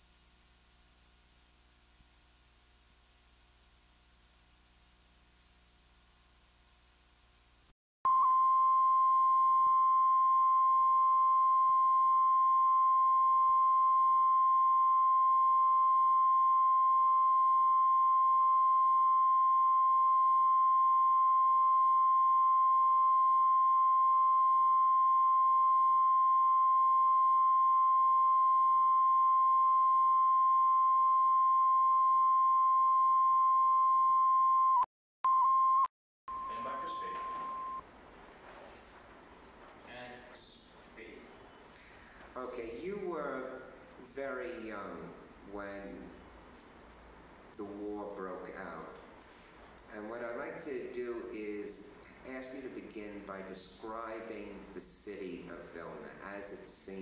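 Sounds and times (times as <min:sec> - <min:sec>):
faint tape hiss: 0:00.0 - 0:10.4, 0:36.3 - 0:57.0
high-pitched test tone: 0:08.1 - 0:37.8.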